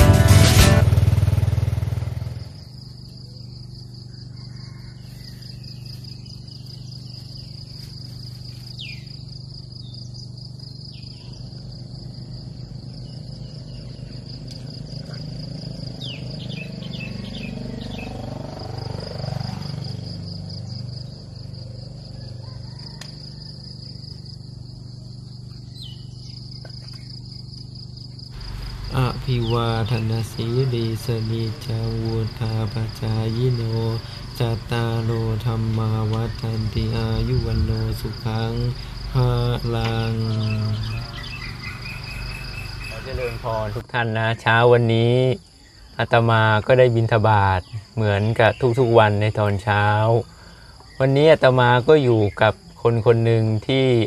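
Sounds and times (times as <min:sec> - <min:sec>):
insects trilling: 0:00.9 - 0:54.0
birds chirping: 0:01.4 - 0:24.4, 0:25.1 - 0:54.0
low droning hum: 0:23.9 - 0:43.8.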